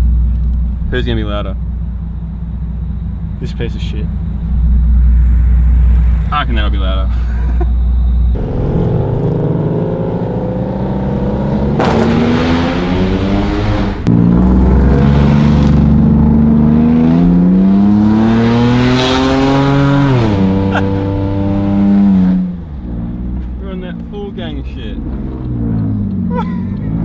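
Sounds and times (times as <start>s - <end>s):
car engine accelerating through gears: 7.8s - 27.0s.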